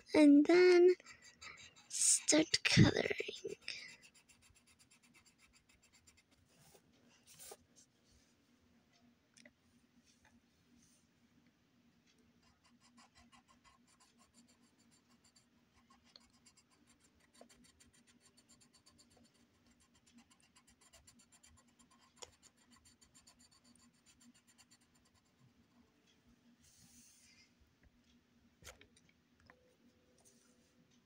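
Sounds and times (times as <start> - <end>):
pencil scratching on paper: 0.2 - 7.6, 12.4 - 25.6.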